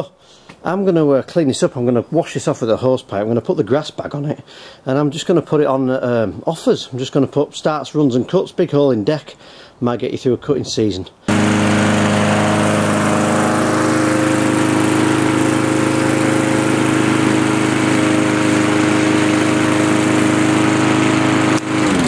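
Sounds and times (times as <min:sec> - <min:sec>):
lawnmower engine running: 0:11.3 - 0:22.0.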